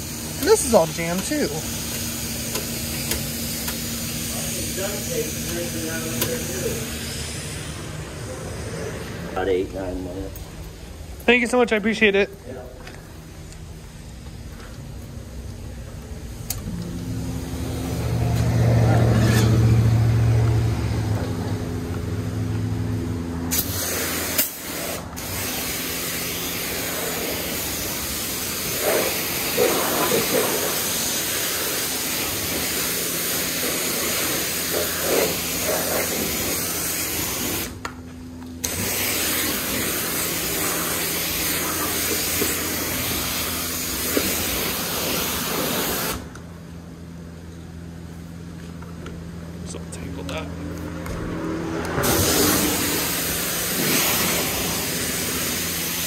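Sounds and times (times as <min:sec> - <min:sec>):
pressure wand spraying water: 0:00.0 - 0:08.6, 0:23.5 - 0:37.8, 0:38.6 - 0:46.3, 0:51.9 - 0:56.0
loud low machine hum: 0:00.0 - 0:56.0.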